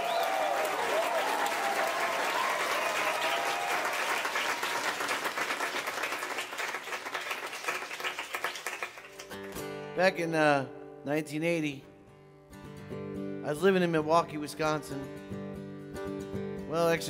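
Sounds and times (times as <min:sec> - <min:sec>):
voices whooping: 0:00.0 - 0:04.4
audience clapping and cheering: 0:00.0 - 0:09.6.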